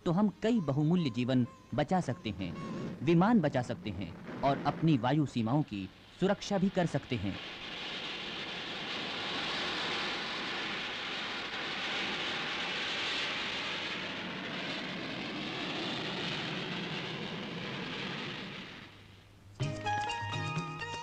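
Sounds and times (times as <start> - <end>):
fighter jets flying past: 7.4 - 19.0.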